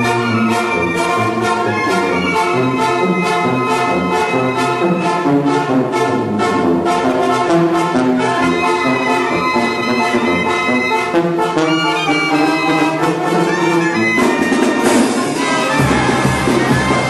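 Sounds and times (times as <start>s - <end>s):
brass band playing: 0.0s - 17.0s
bass drum beat: 15.7s - 17.0s.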